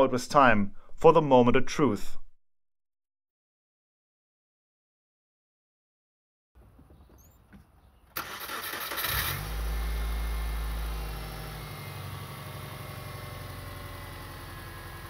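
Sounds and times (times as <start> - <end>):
starter motor cranking: 8.2 - 10.0
car engine idling: 8.2 - 15.0.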